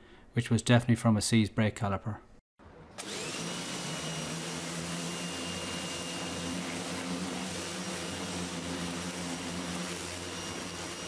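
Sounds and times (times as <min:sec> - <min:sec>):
pressure washer humming: 0:03.0 - 0:11.0.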